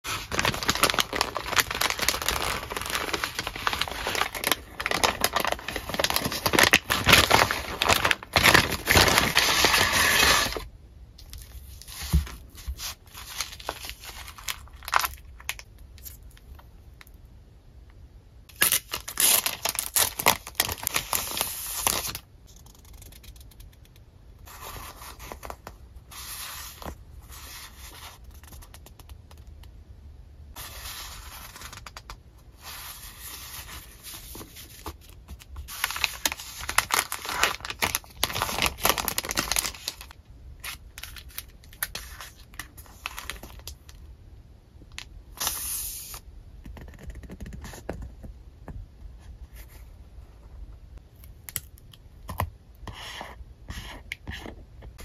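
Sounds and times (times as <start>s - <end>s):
packaging crinkling and rustling: 0.1s - 16.4s, 18.6s - 22.2s, 33.4s - 44.0s.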